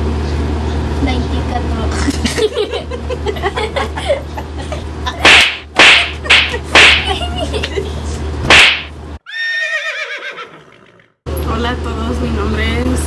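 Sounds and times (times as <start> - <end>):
hands slapping bare skin: 5.2 - 7.1, 8.5 - 8.9.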